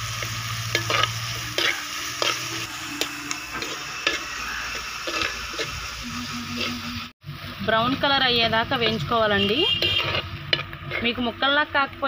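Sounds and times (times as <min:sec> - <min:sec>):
onions sizzling in hot oil: 0:00.0 - 0:12.0
spoon scraping clay pot: 0:09.6 - 0:11.2.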